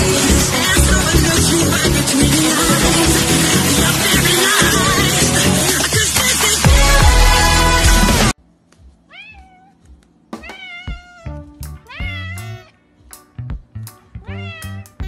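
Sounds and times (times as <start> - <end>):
cat meowing: 9.1 - 9.8, 10.4 - 12.8, 14.2 - 15.0.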